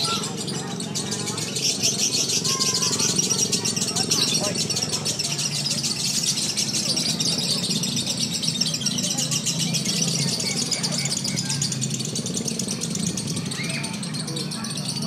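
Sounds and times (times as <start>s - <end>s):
lovebirds chattering trill: 0.0s - 15.0s
murmur of voices: 0.0s - 15.0s.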